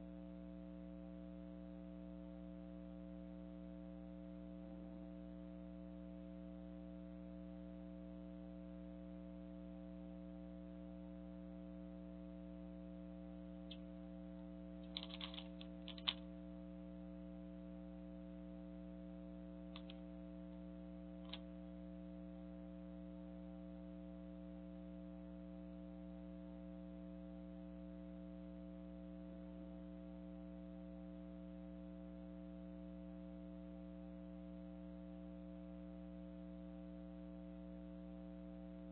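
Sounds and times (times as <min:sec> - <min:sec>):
electrical hum: 0:00.0 - 0:38.9
light clicks and taps: 0:14.8 - 0:16.2, 0:19.7 - 0:20.0.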